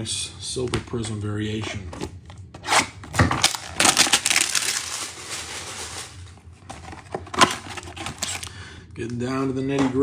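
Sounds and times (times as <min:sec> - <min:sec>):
packaging crinkling and tearing: 0:02.7 - 0:08.6.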